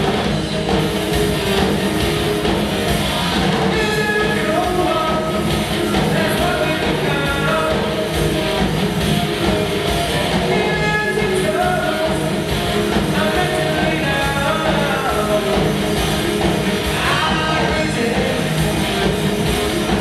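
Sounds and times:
driving drum beat: 0.0s - 20.0s
electric guitars: 0.0s - 20.0s
rock band playing live: 0.0s - 20.0s.

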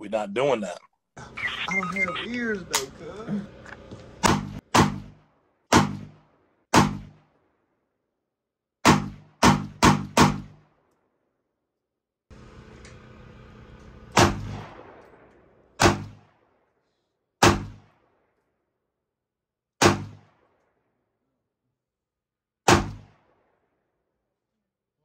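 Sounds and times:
pistol gunshots with echo: 4.2s - 7.4s, 8.8s - 10.8s, 14.2s - 16.5s, 17.4s - 18.2s, 19.8s - 20.5s, 22.7s - 23.5s.

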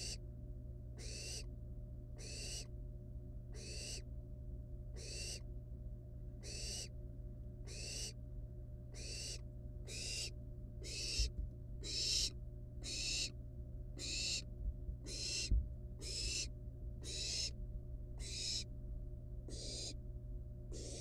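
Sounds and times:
owl nestlings hissing: 1.0s - 1.4s, 2.2s - 2.7s, 3.6s - 4.0s, 5.0s - 5.4s, 6.4s - 6.9s, 7.7s - 8.1s, 9.0s - 13.3s, 14.0s - 14.4s, 15.0s - 17.6s, 18.2s - 18.7s, 19.5s - 20.0s, 20.7s - 21.0s.

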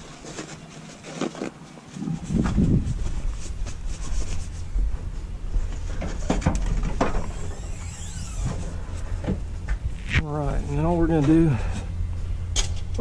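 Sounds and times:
low steady rumble: 2.0s - 13.0s
rubbing and scuffing on microphone: 2.1s - 6.3s.

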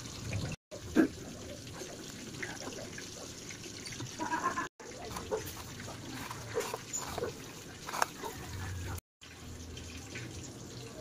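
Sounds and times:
crackly breadcrumb rustle: 4.9s - 8.8s.

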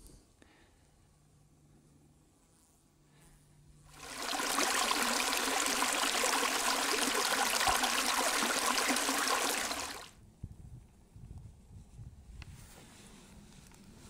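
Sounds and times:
stream splashing over stones: 3.9s - 10.1s.

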